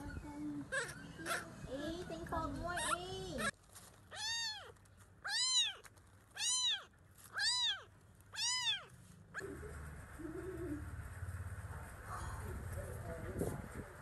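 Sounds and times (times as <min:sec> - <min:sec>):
kitten meowing: 0:04.1 - 0:08.9.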